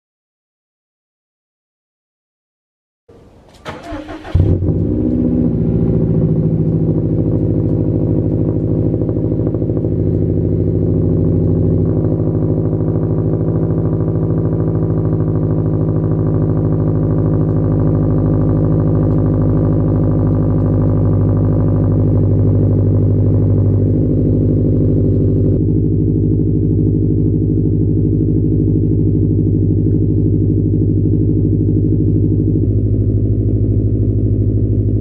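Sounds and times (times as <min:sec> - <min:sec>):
car engine starting and idling: 0:03.1 - 0:35.0
car starter cranking: 0:03.2 - 0:05.3.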